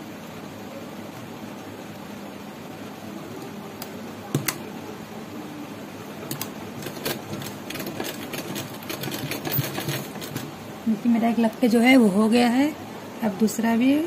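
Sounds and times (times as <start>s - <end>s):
sewing machine stitching: 6.3s - 10.5s.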